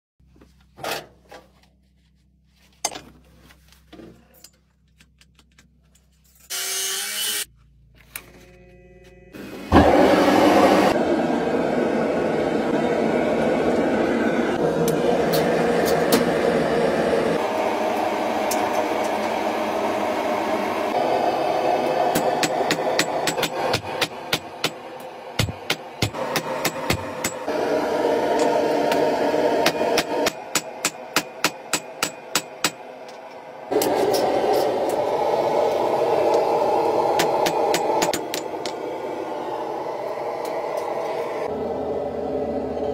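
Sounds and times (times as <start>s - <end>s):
gas forge burner rushing: 9.4s - 42.9s.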